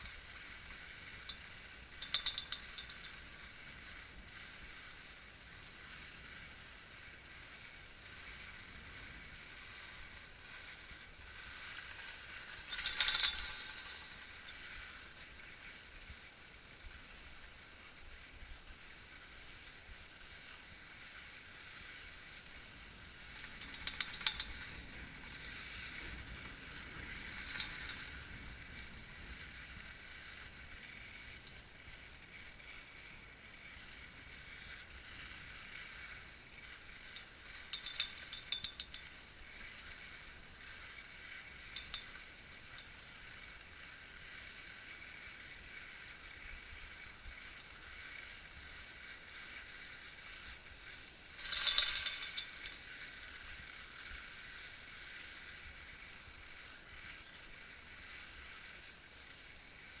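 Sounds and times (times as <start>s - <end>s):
skis hissing over snow: 0.0s - 60.0s
rattling clicks: 1.2s - 3.2s, 12.4s - 14.5s, 23.3s - 25.4s, 37.1s - 39.1s, 41.7s - 42.2s, 51.4s - 52.8s
lift clatter: 1.2s - 3.3s, 23.3s - 25.4s, 37.1s - 39.1s, 51.4s - 52.8s.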